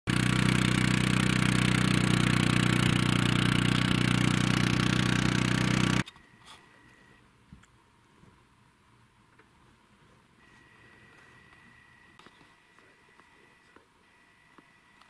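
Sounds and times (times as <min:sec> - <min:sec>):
atv engine running: 0:00.1 - 0:06.1.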